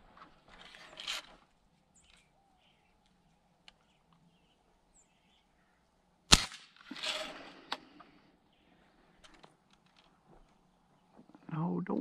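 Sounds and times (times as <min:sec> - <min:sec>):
rustle: 0:00.0 - 0:11.5
small birds chirping: 0:01.6 - 0:06.2, 0:07.8 - 0:12.0
air rifle shot crack: 0:06.3 - 0:07.8.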